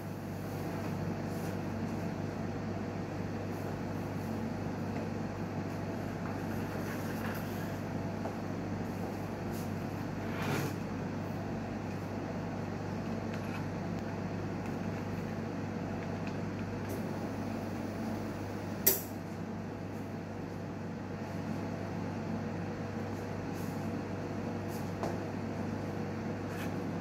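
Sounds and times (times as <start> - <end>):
sharp click: 18.8 - 19.1.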